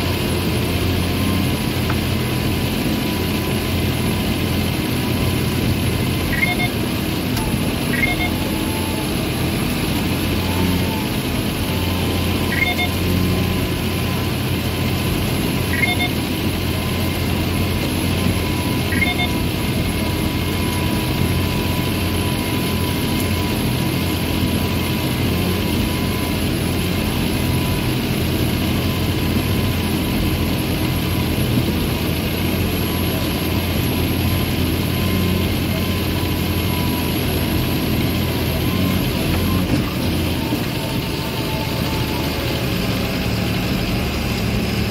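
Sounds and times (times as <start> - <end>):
tractor diesel engine running: 0.0 - 44.9
short high chirp: 7.8 - 8.4.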